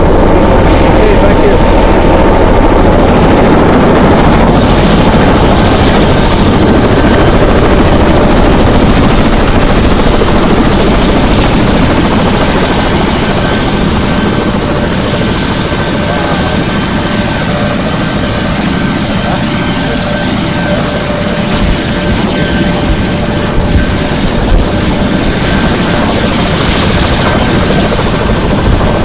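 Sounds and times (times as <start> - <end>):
helicopter rotor rush: 0.0 - 29.0
high turbine whine: 0.0 - 29.0.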